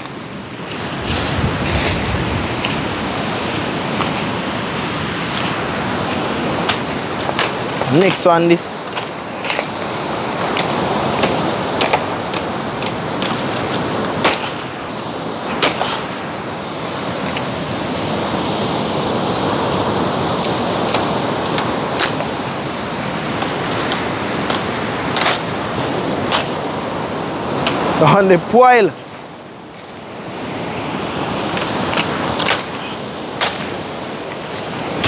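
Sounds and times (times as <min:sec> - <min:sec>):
steady rushing noise: 0:00.0 - 0:35.0
machete chopping wooden stick: 0:09.0 - 0:14.7, 0:15.5 - 0:16.2, 0:32.0 - 0:33.8.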